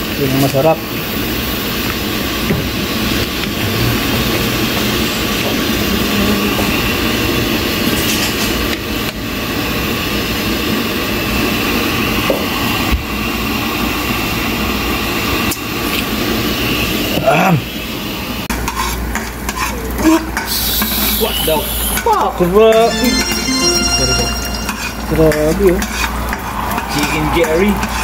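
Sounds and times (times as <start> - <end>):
curry simmering in a pan: 18.5 - 21.1.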